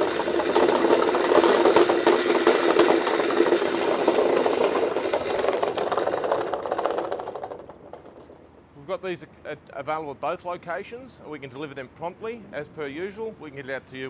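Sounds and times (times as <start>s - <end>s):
concrete vibrator rattling: 0.0s - 8.7s.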